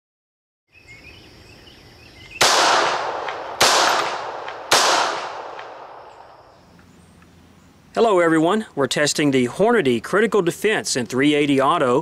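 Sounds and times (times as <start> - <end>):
pistol shots echoing: 2.4 - 6.5.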